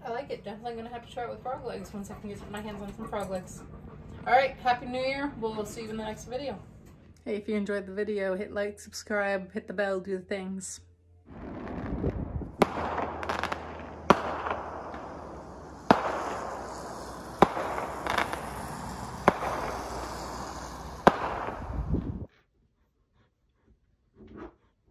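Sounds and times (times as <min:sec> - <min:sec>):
fireworks bangs: 0:11.3 - 0:22.3
fireworks crackle and rumble: 0:11.3 - 0:22.3.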